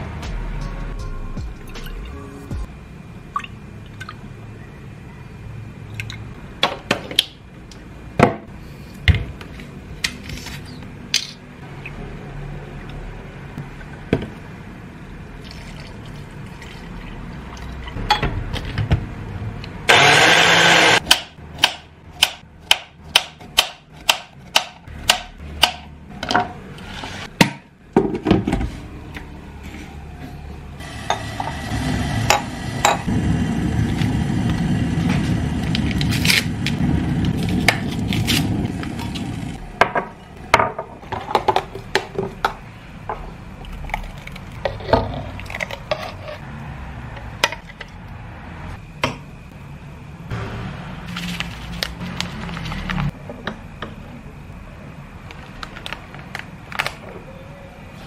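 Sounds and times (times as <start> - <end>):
electric hand blender whirring: 19.9 - 21.0.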